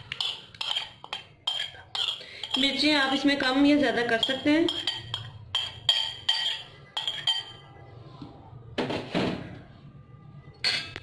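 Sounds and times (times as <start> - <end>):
metal spoon clinking on bowl: 0.0 - 7.7, 10.6 - 11.0.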